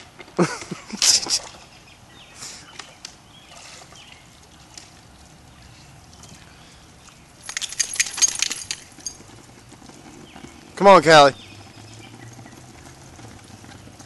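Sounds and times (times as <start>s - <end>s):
water sloshing and dripping: 0.0s - 14.0s
dog claws clicking and spatter: 7.4s - 10.4s.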